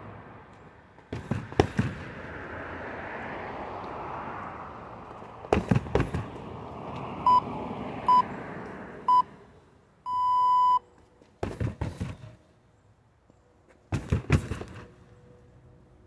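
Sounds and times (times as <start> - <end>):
kicks thudding on heavy bag: 5.5 - 6.3.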